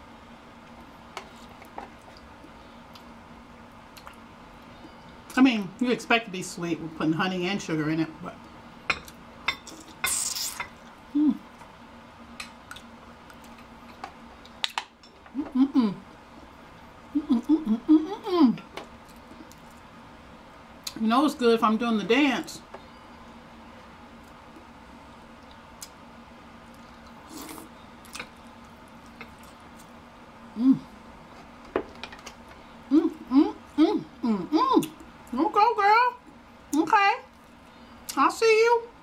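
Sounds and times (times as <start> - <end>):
person humming mm: 11.1 - 11.5, 15.3 - 16.1, 17.2 - 18.7, 30.5 - 31.0, 32.9 - 34.9.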